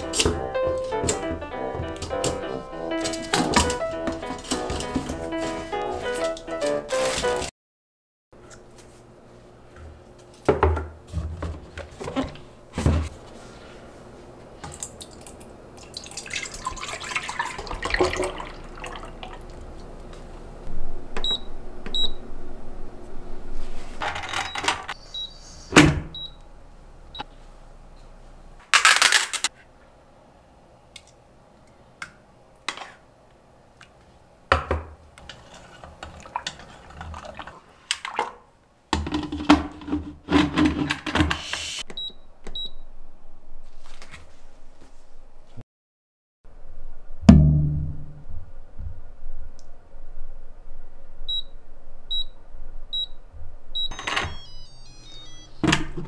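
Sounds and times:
water running from a tap: 15.8s - 19.6s
high electronic beeps: 53.8s - 56.0s.

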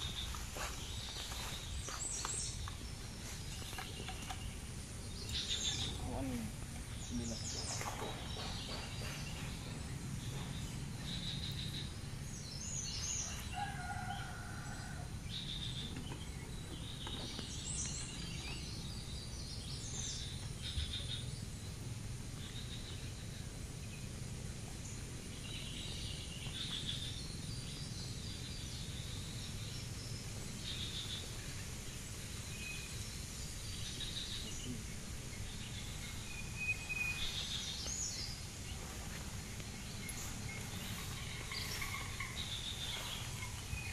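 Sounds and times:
steady low rumble: 0.0s - 13.6s, 14.7s - 43.9s
birds chirping and calling: 0.0s - 43.9s.

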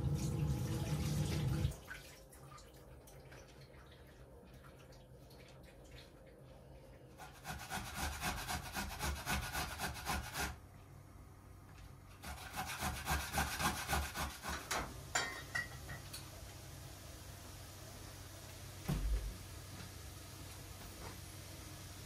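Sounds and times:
food grated on metal grater: 7.2s - 10.6s, 12.2s - 14.7s.

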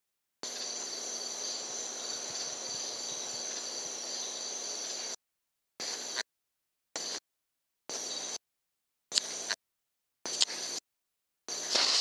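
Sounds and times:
night insects chorus: 0.4s - 5.2s, 7.9s - 8.4s, 11.5s - 12.0s.

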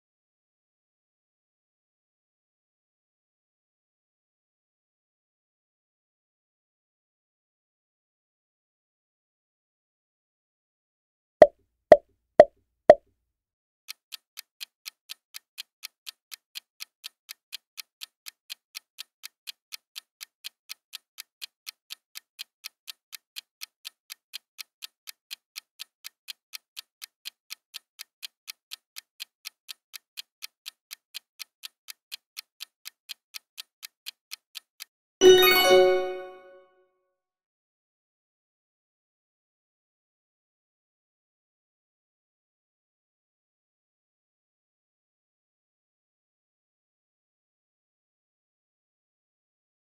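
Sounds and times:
clock ticking: 14.1s - 36.3s
bright multi-tone chime: 35.2s - 36.6s.

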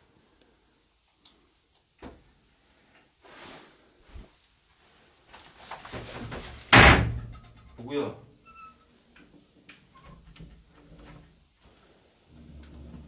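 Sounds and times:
rustling: 2.5s - 7.8s
loud door bang: 6.7s - 7.6s.

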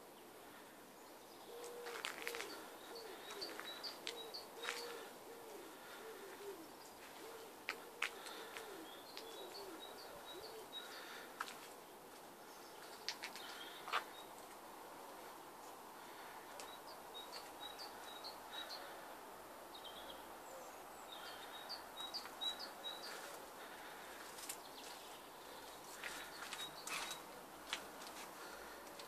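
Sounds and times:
small birds chirping: 0.0s - 29.0s
pigeon cooing: 1.5s - 11.2s.

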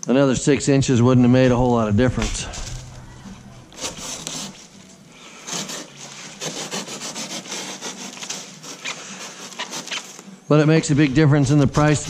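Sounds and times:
knife slicing cardboard: 3.7s - 4.7s, 5.4s - 10.2s.

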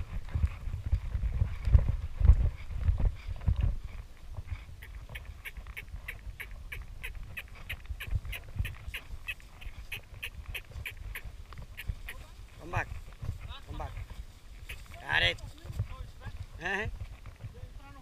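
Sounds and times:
horses walking on sand: 0.0s - 18.0s
wind rumble on microphone: 0.0s - 18.0s
saddle and tack squeaking: 2.5s - 12.4s, 13.1s - 16.1s.

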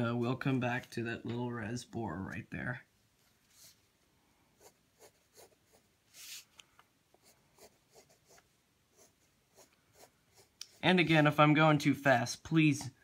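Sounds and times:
pencil scratching on paper: 4.6s - 6.5s, 7.2s - 11.3s.

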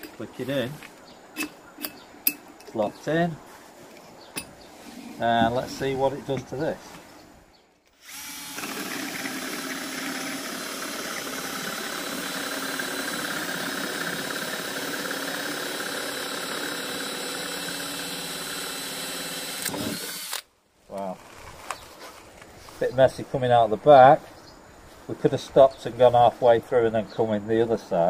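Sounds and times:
drill cutting through wood: 7.9s - 20.5s.

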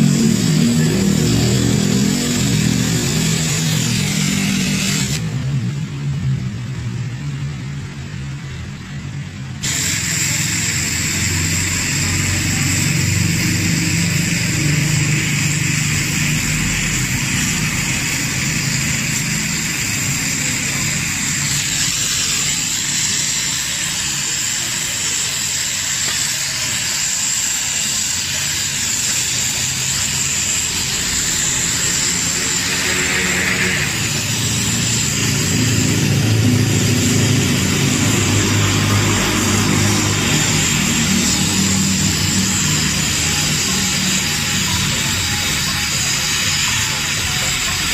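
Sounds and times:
gas welding torch hissing: 0.0s - 5.9s, 7.9s - 47.9s.

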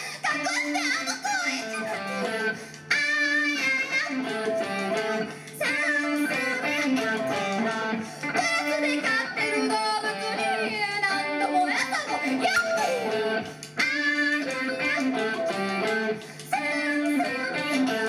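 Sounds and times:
electric guitars: 0.0s - 18.0s.

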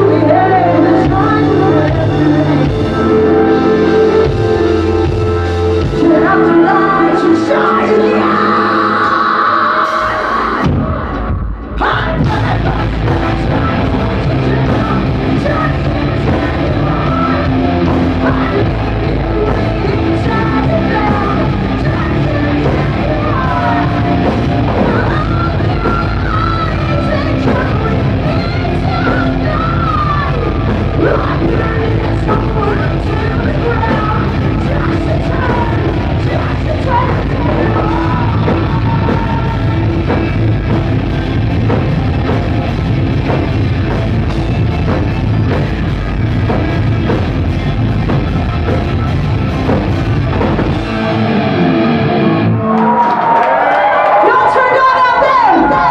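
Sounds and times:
drum kit: 0.0s - 54.4s
bass guitar: 0.0s - 55.9s
distorted electric guitars: 0.0s - 55.9s
woman singing and shouting: 54.2s - 55.9s.

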